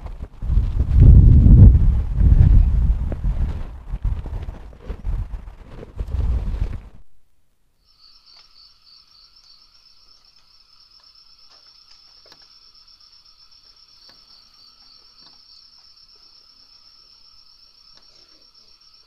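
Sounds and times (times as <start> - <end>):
crickets chirping: 7.8 - 19.0.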